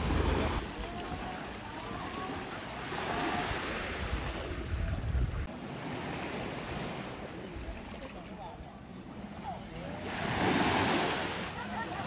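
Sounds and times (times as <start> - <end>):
small waves washing on shore: 0.0 - 8.4, 9.2 - 12.0
wind buffeting microphone: 3.9 - 5.5.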